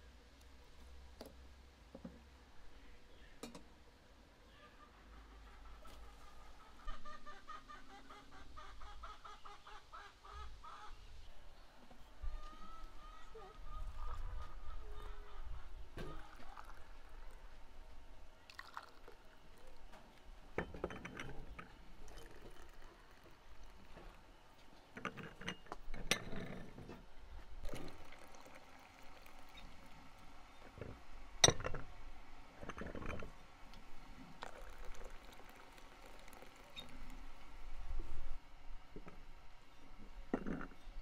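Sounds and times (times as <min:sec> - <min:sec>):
tea pouring into glasses: 0:16.0 - 0:24.2, 0:27.6 - 0:30.7, 0:33.8 - 0:37.5.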